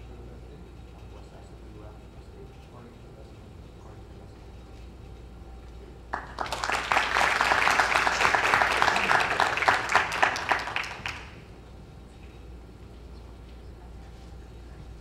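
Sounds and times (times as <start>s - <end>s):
small group applauding: 6.1s - 11.5s.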